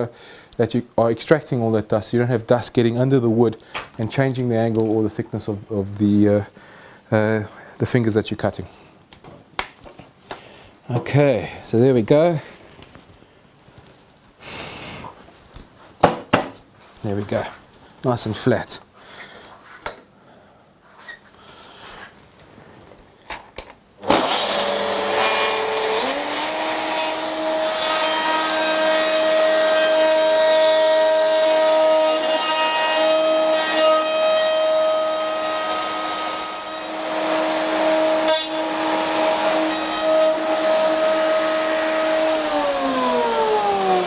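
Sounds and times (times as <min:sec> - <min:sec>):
saw running and cutting: 0:24.1 - 0:44.0.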